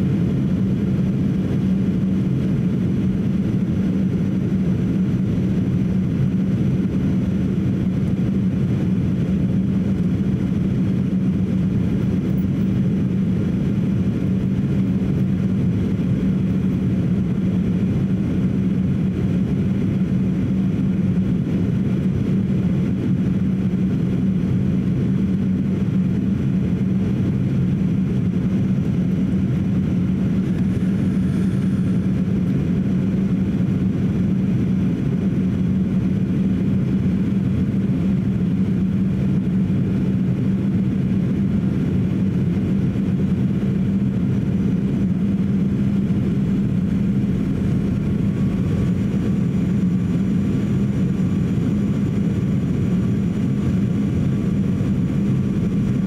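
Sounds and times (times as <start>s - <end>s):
airplane cabin engine drone: 0.0s - 56.0s.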